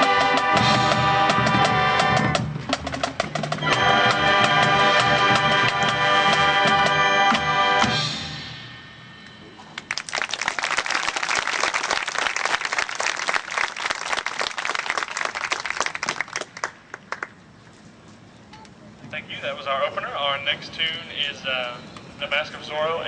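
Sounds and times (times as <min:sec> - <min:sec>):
marching band brass and drums: 0:00.0 - 0:09.6
audience clapping: 0:09.8 - 0:17.4.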